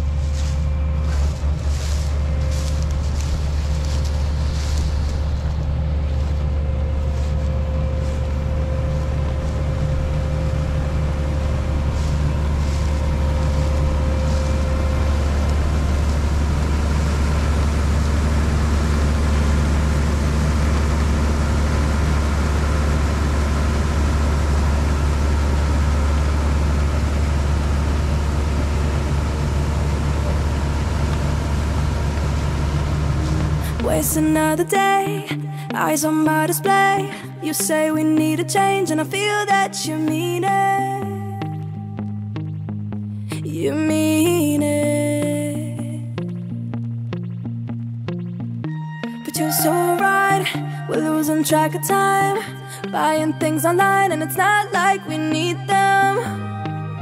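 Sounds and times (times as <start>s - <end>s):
thin steady whine: 0.0s - 39.8s
combine harvester drone: 0.0s - 47.5s, 48.3s - 57.0s.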